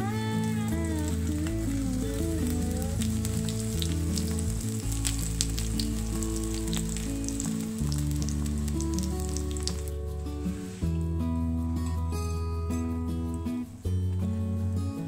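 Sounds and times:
crackle of fine pops: 0.4s - 10.0s
pastry sizzling in a pan: 0.4s - 10.8s.

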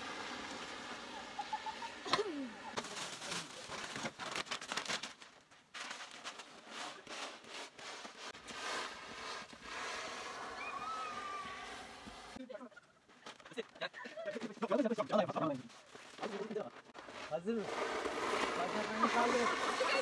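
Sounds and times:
sleds crunching on snow: 0.0s - 20.0s
short falling squeal: 10.5s - 11.8s.

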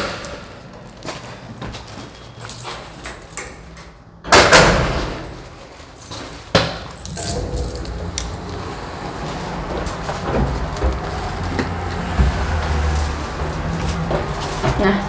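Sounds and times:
keys jangling: 5.1s - 8.4s
steady low rumble: 7.0s - 11.5s.

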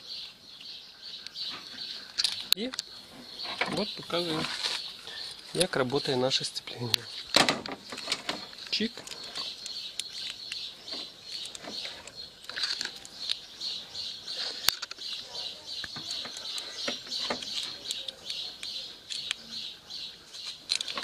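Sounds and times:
metallic clicks and rattles: 7.3s - 13.4s, 20.4s - 21.0s.

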